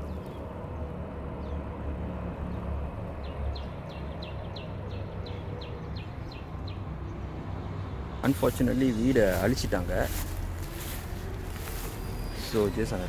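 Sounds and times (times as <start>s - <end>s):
steady low rumble: 8.3s - 13.0s
bird calling high sliding notes: 10.2s - 13.0s.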